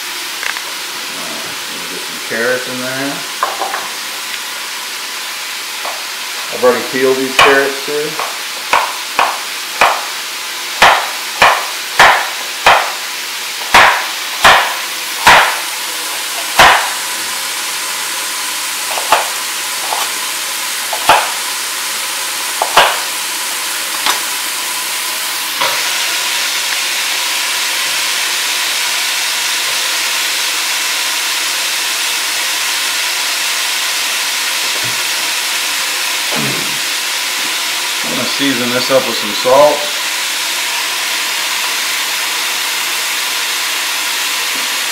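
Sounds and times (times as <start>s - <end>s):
vegetables sizzling in a pot: 0.0s - 44.9s
knife knocking on cutting board: 8.2s - 10.1s, 10.8s - 13.0s, 13.7s - 15.6s, 16.6s - 17.0s, 21.0s - 21.4s, 22.6s - 23.1s.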